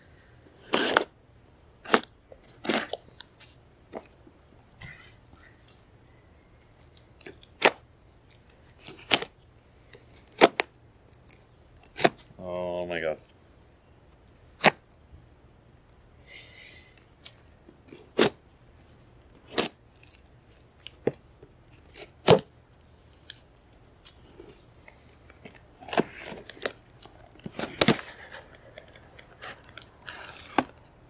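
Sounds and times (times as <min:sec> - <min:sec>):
knife slitting tape: 0:00.7 - 0:01.1
cardboard scraping and rustling: 0:25.4 - 0:30.8.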